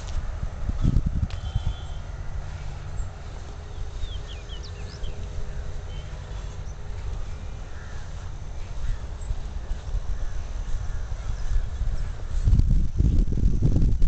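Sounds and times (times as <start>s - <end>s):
wind on microphone: 0.0s - 14.0s
bird chirps: 1.3s - 2.2s, 2.8s - 12.3s.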